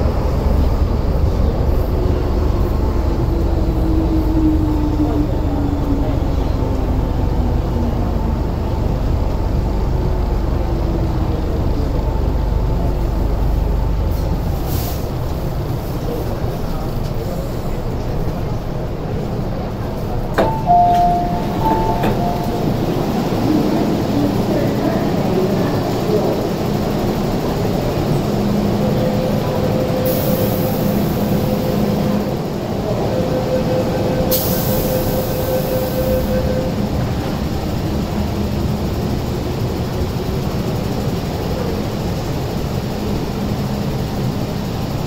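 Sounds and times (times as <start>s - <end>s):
train low rumble: 0.0s - 45.0s
train doors clunking open: 20.0s - 24.2s
two-tone door chime: 20.4s - 22.8s.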